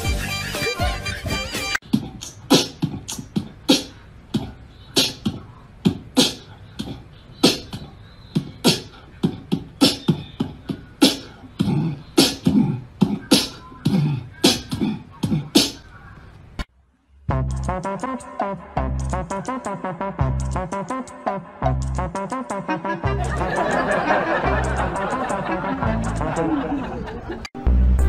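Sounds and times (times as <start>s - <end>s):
music: 0.0s - 1.8s, 17.2s - 26.7s, 27.6s - 28.0s.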